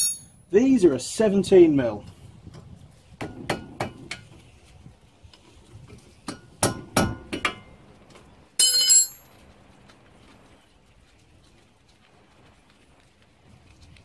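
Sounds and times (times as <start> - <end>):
ringing metallic clatter: 0.0 - 0.4, 8.6 - 9.3.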